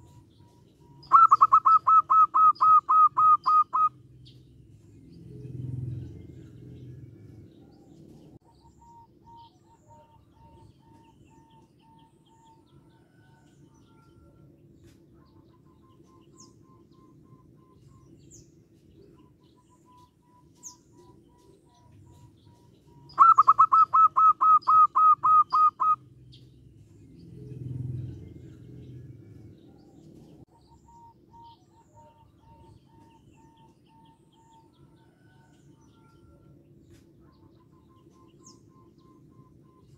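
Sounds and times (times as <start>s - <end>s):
dove cooing: 0.0s - 4.0s, 20.9s - 26.1s
birds chirping: 0.0s - 39.9s.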